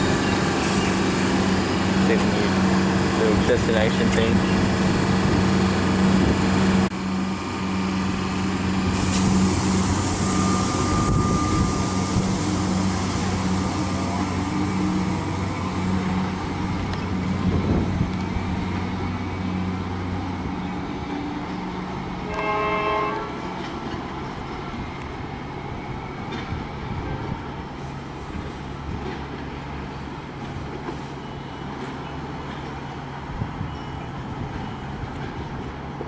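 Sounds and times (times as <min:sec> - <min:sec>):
electric train humming: 0:00.0 - 0:31.1
short train horn: 0:09.0 - 0:12.8, 0:22.2 - 0:23.6.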